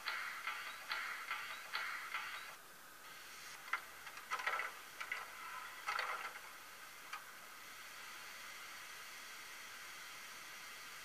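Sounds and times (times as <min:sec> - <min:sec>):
model locomotive clicks and clatters: 0:00.0 - 0:02.6, 0:03.5 - 0:07.3
steady low hiss: 0:00.0 - 0:11.0.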